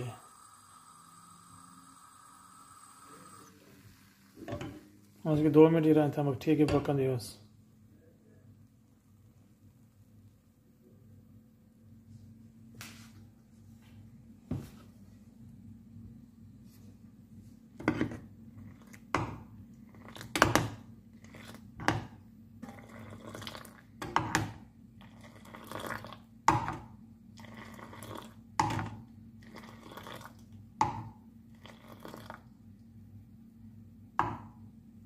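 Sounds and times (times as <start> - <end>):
pouring liquid splashing: 22.7 - 23.9, 25.1 - 26.3, 27.4 - 28.4, 29.4 - 30.6, 31.6 - 32.5.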